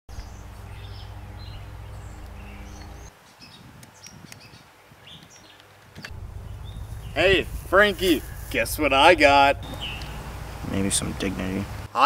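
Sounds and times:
low hum: 0:00.1 - 0:03.1, 0:06.1 - 0:11.9
birds chirping: 0:00.1 - 0:11.9.

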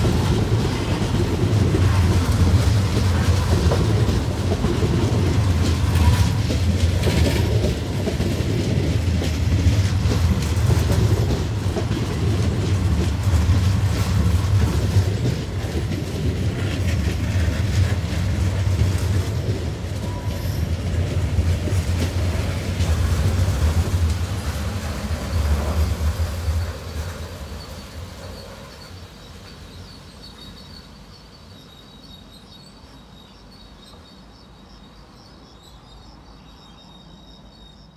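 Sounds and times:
wheels clattering over rail joints: 0:00.0 - 0:28.8
train coaches rolling past: 0:00.0 - 0:37.9.

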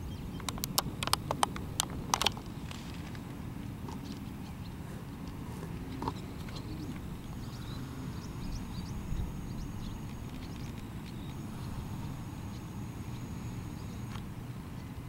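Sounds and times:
small birds chirping: 0:00.0 - 0:15.0
wind buffeting microphone: 0:03.3 - 0:15.0
thin high steady tone: 0:05.5 - 0:15.0.

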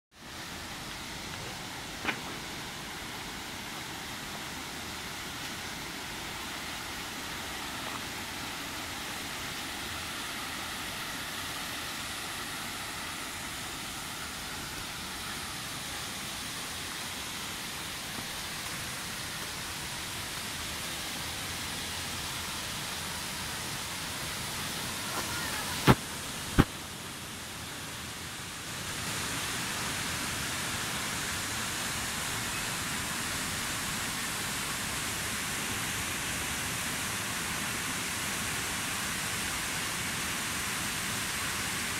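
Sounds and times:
waterfall rushing: 0:00.2 - 0:41.9.

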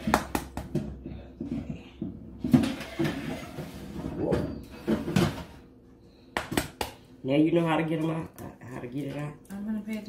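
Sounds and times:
rustling and scraping: 0:01.4 - 0:05.7.

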